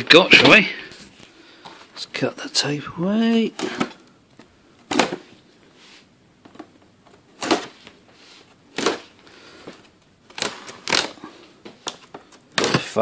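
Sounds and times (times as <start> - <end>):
packing tape ripping: 10.3 - 11.2.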